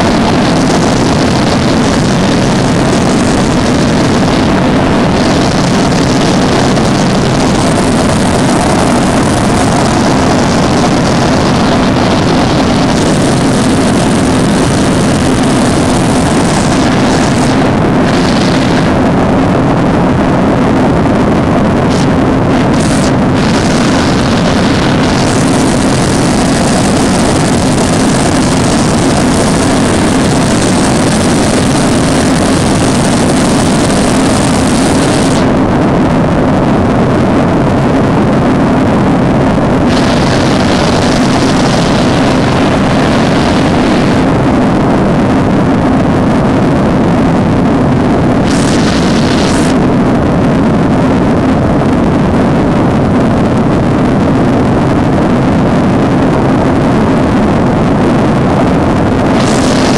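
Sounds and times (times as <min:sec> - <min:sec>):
constant low hum: 0:00.0 - 0:59.9
turboprop engine drone: 0:00.0 - 0:59.9
high hiss: 0:05.9 - 0:17.5.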